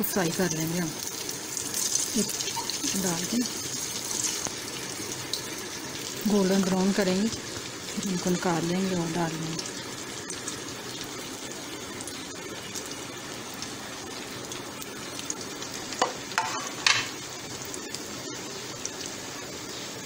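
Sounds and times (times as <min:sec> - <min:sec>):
food deep-frying in hot oil: 0:00.0 - 0:20.0
oil crackling: 0:00.2 - 0:19.5.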